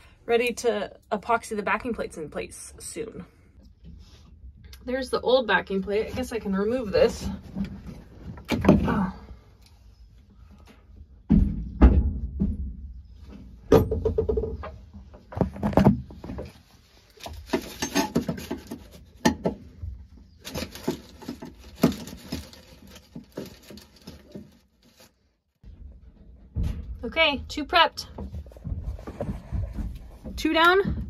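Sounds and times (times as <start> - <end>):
tapping and knocking: 13.7 - 16.0.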